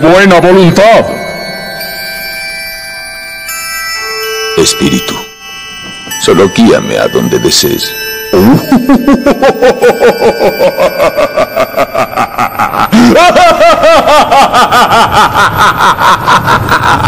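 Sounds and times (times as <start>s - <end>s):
maniacal laugh: 8.4s - 17.0s.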